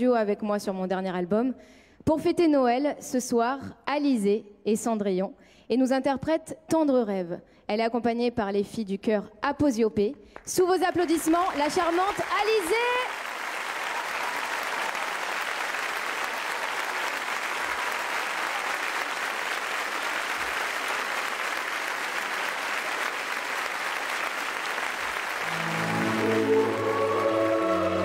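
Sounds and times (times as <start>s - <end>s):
studio audience applauding: 10.4s - 28.0s
instrumental music: 25.4s - 28.0s.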